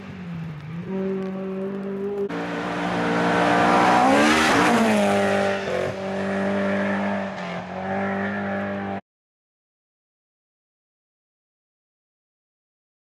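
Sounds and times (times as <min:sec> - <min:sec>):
rally car engine passing: 0:00.0 - 0:09.0.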